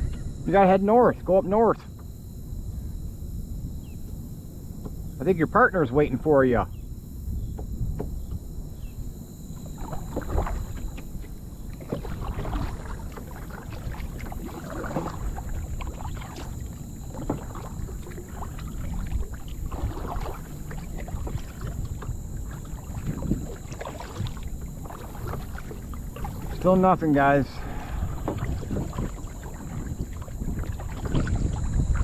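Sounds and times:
wind rumble on microphone: 0:00.0 - 0:32.0
water splashing around kayak: 0:00.5 - 0:32.0.

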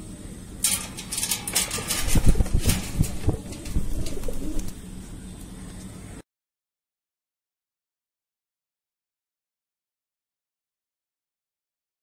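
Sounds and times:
handling rustling and thumps: 0:00.7 - 0:04.8
parrot beating wings: 0:01.4 - 0:04.8.

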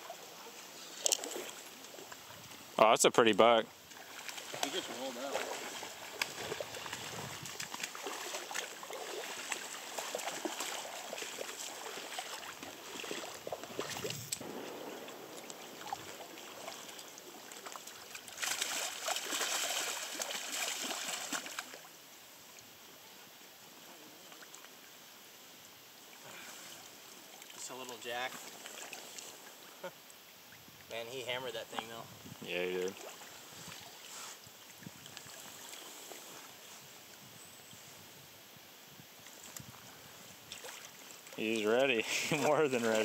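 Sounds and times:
river rushing: 0:03.9 - 0:21.8
fish splashing in water: 0:03.9 - 0:21.9.

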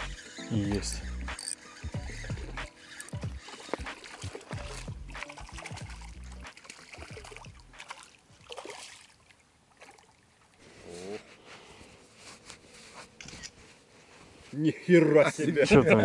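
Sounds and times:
fish splashing at water surface: 0:03.0 - 0:10.2.

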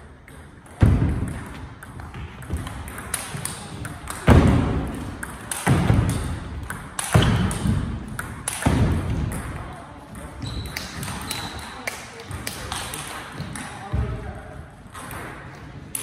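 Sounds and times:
heavy echoing thuds: 0:00.7 - 0:11.2.

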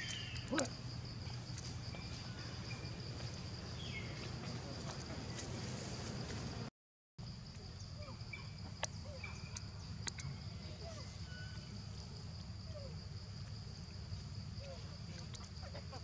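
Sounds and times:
bird chirps: 0:00.0 - 0:00.7, 0:07.8 - 0:12.0
high insect drone: 0:00.0 - 0:16.0
sharp clicks: 0:09.5 - 0:10.3.

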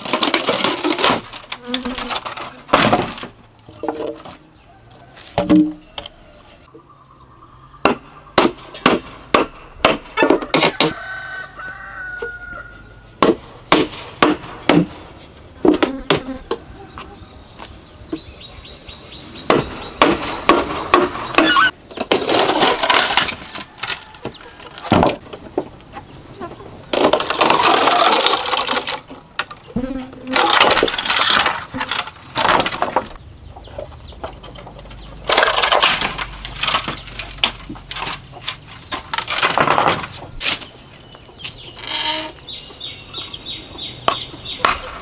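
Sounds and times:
bamboo splitting and crackling: 0:00.0 - 0:04.5, 0:07.8 - 0:12.4, 0:13.2 - 0:16.3, 0:19.5 - 0:25.9, 0:26.9 - 0:42.4.

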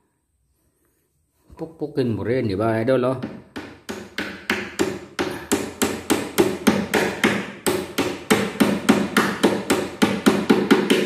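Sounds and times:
hammer driving nail into plywood: 0:03.2 - 0:11.0.

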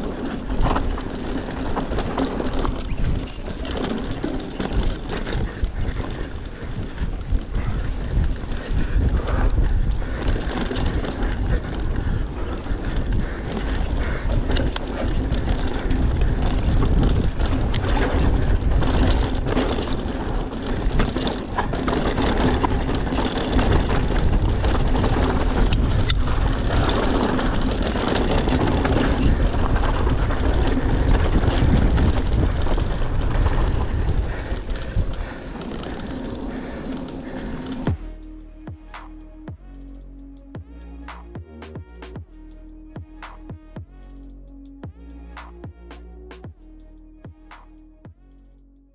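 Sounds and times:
wind buffeting microphone: 0:00.0 - 0:38.1
bike rattling and knocking: 0:00.0 - 0:39.6
bike tyre noise: 0:00.0 - 0:48.9.

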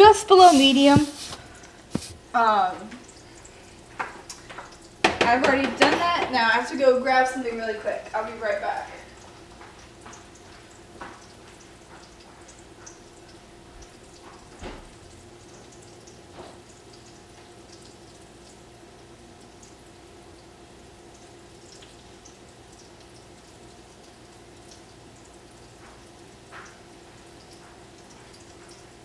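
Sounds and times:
fish sizzling in a pan: 0:00.0 - 0:29.0
small pops and crackles: 0:00.4 - 0:06.3.

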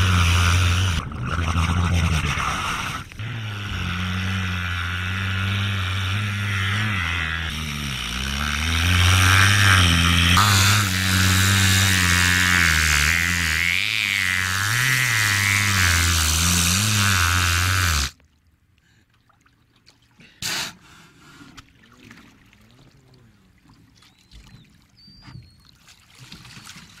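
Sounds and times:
killer whale droning buzz: 0:00.0 - 0:18.2
water lapping and trickling: 0:00.0 - 0:27.0.

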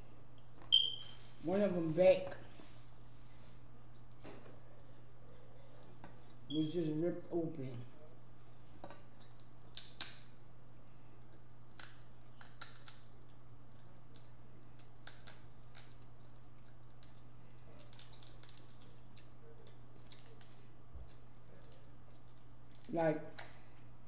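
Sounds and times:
steady low hum: 0:00.0 - 0:24.0
crab shell cracking and clicking: 0:09.2 - 0:10.3, 0:11.3 - 0:23.5.

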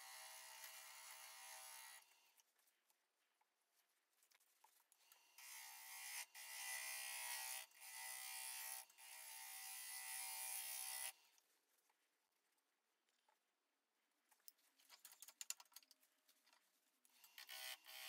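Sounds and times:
gouge cutting wood on lathe: 0:00.1 - 0:02.0.

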